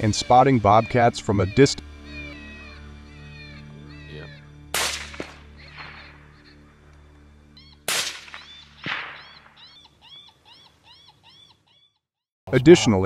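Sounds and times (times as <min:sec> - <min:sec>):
high arching call: 0:00.0 - 0:12.1
sharp rifle-like cracks: 0:04.7 - 0:06.4, 0:07.8 - 0:09.6.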